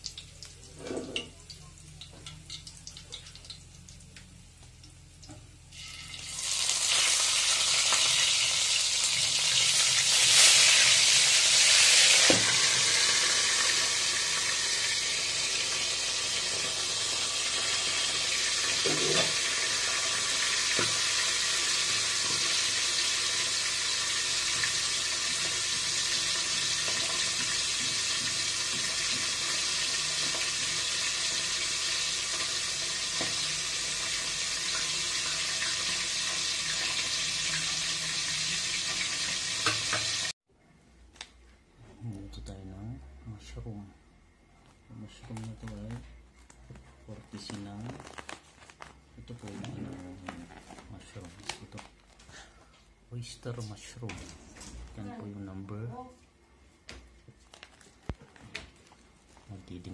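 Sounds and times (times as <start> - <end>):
fish sizzling in hot oil: 5.6 - 40.4.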